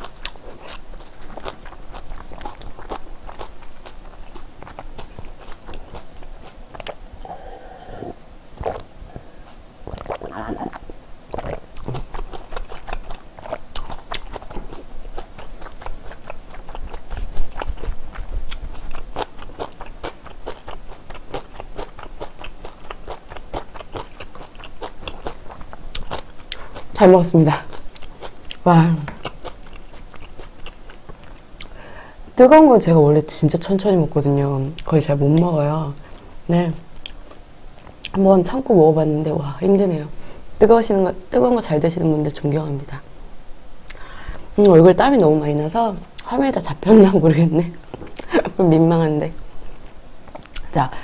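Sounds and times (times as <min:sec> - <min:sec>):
chewing noodles: 0:00.0 - 0:31.8
wet mouth clicks: 0:06.8 - 0:08.9, 0:09.9 - 0:14.6.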